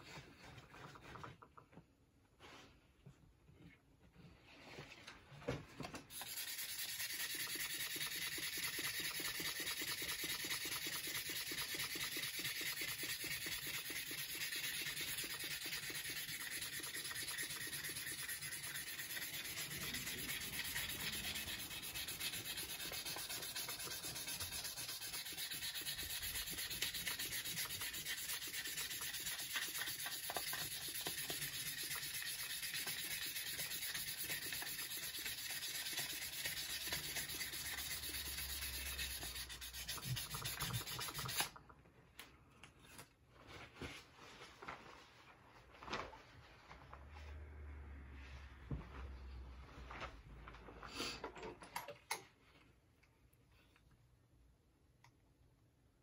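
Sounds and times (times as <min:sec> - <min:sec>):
sandpaper rubbing on steel: 0:06.1 - 0:41.5.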